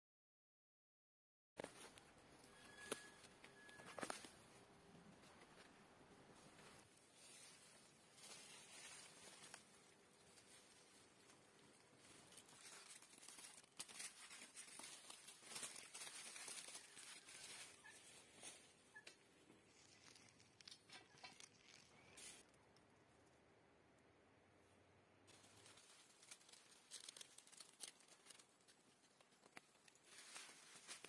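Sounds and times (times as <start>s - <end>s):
leaves rustling and crackling: 6.4s - 22.5s, 25.3s - 31.0s
bean stems snapping: 12.2s - 17.4s, 19.1s - 22.3s, 25.6s - 31.0s.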